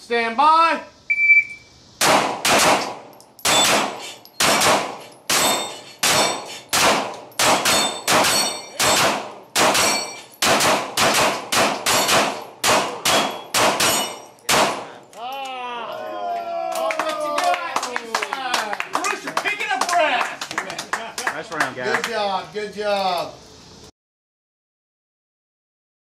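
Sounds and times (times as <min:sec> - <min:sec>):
shot timer beep: 0:01.1 - 0:01.7
pistol shots: 0:02.0 - 0:15.0
bullets ringing off steel plates: 0:03.2 - 0:14.9.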